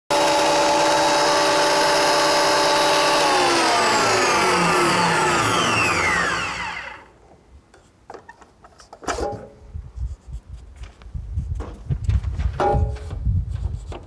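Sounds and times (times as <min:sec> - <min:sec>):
thickness planer running and winding down: 0:00.1 - 0:07.1.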